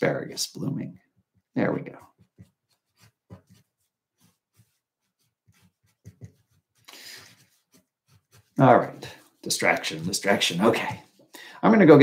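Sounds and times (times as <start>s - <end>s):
pen scratching on paper: 1.9s - 11.0s.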